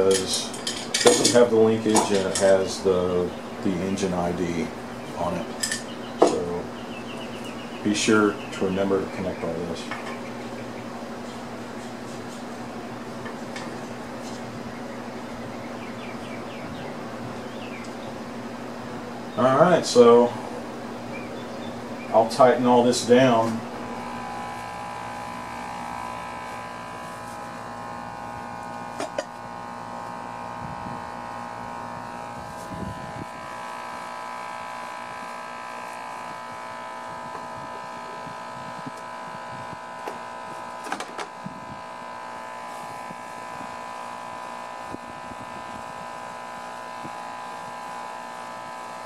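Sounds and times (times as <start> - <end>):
hand tools clinking on metal: 0.0 - 2.5
electrical buzzing hum: 0.0 - 49.0.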